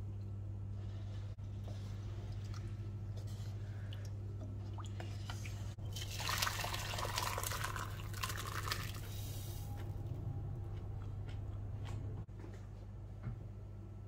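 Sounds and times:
steady low hum: 0.0s - 6.1s, 7.8s - 14.0s
broth pouring and splashing: 5.0s - 9.3s.

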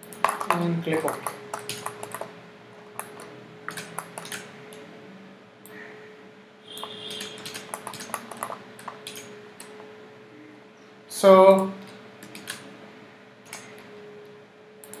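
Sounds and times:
mouse and keyboard clicks: 0.0s - 2.3s, 3.0s - 4.5s, 6.7s - 9.8s, 11.8s - 12.6s
faint electrical hum: 0.0s - 15.0s.

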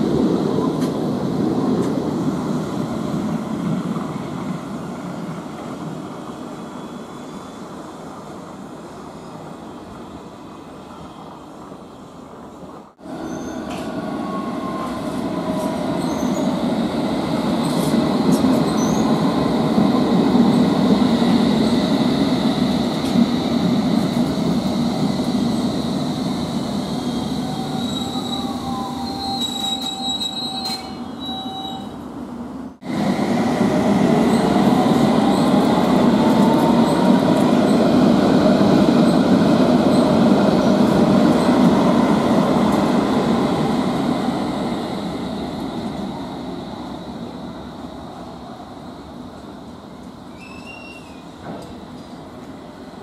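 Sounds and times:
train wheel squeal: 6.6s - 7.8s, 13.1s - 16.7s, 17.6s - 19.3s, 25.0s - 32.0s, 34.2s - 37.9s, 39.9s - 40.6s, 50.3s - 51.4s.

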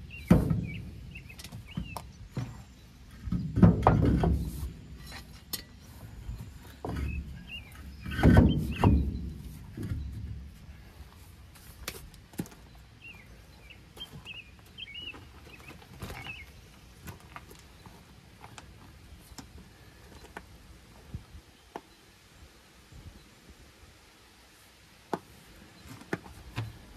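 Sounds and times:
footsteps on gravel: 10.9s - 20.4s
small bird chirping: 12.6s - 16.8s.

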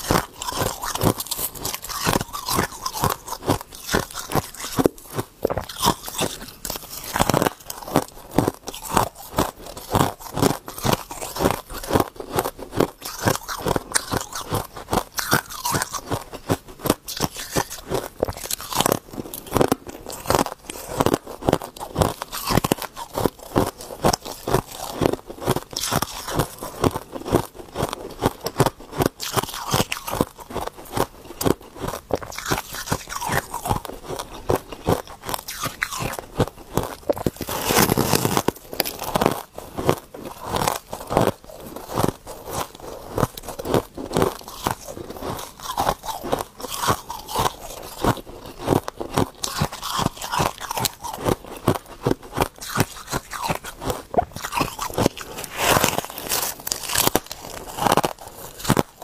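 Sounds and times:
crunching and chewing frost: 0.0s - 59.0s.

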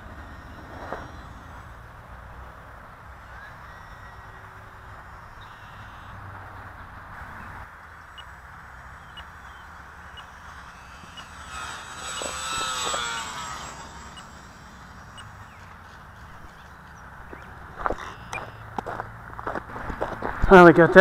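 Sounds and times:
model plane motor whine: 0.0s - 2.5s, 8.0s - 18.3s.

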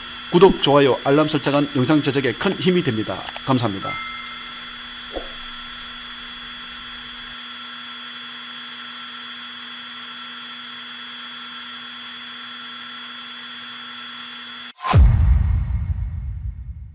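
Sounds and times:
drone motors whining: 0.0s - 7.4s.

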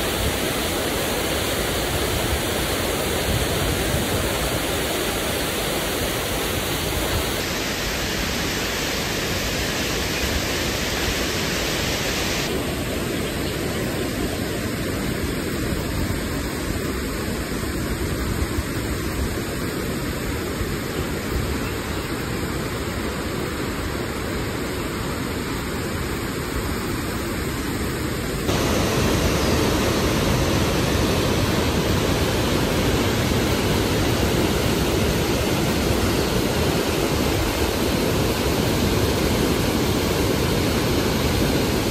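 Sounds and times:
water rushing through dam gate: 0.0s - 15.1s, 28.4s - 41.9s.

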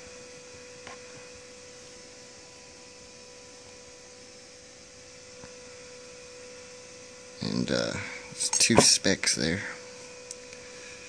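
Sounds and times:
steady two-tone hum: 0.0s - 11.0s.

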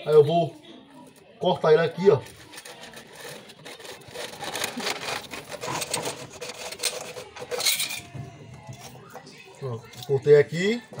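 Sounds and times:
hacksaw sawing plastic pipe: 2.5s - 7.7s.

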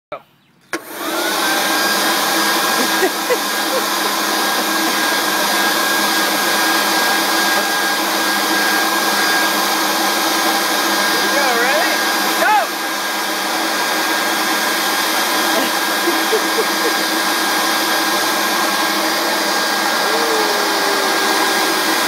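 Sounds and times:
leaf blower motor whine: 0.8s - 22.0s
rush of blowing air: 0.8s - 22.0s.

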